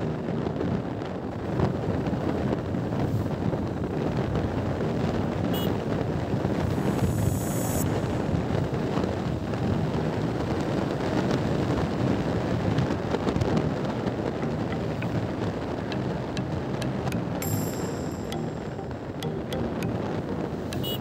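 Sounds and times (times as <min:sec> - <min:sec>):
motorcycle engine drone: 0:00.0 - 0:21.0
wind buffeting the microphone: 0:00.1 - 0:14.3.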